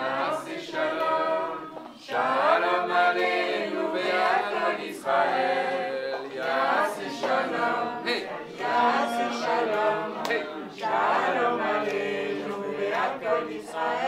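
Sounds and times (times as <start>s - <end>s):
group singing without instruments: 0.0s - 14.0s.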